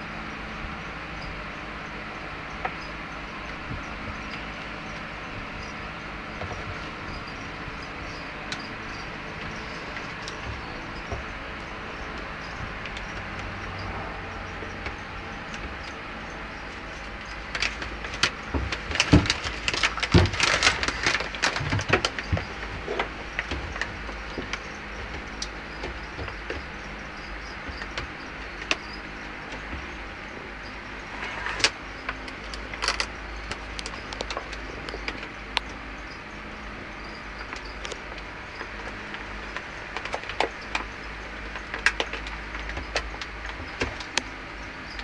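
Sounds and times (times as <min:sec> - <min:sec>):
steady low hum: 0:00.0 - 0:45.0
rustling and sharp clicks: 0:16.6 - 0:26.7, 0:31.0 - 0:35.7.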